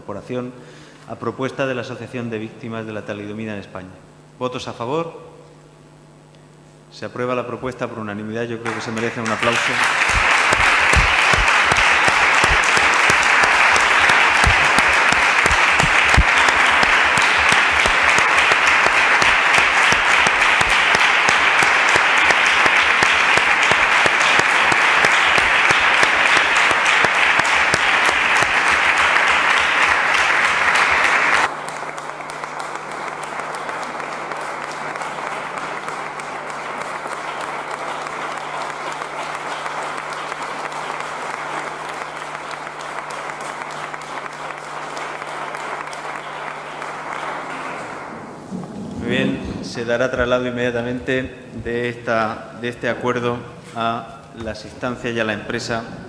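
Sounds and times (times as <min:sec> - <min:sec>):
crowd applauding: 0:08.6 - 0:49.3.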